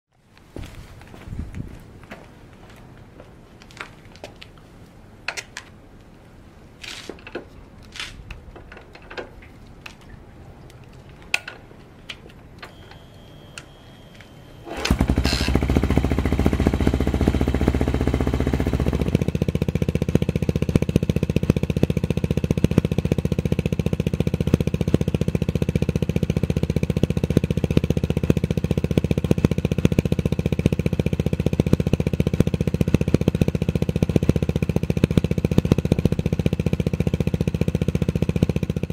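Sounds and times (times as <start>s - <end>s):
motorcycle engine kick-started: 12.6s - 38.9s
engine idling: 12.7s - 38.9s.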